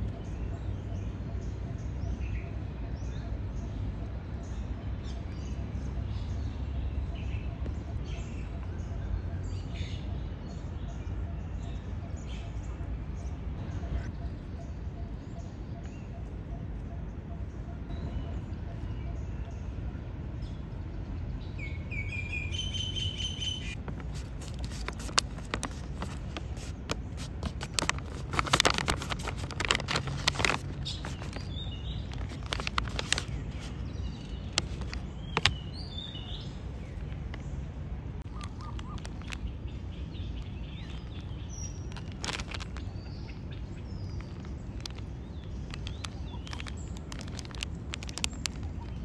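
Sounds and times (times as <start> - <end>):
birds chirping: 0.0 - 49.0
sharp clicks and crackles: 23.7 - 35.7, 38.2 - 39.5, 40.4 - 49.0.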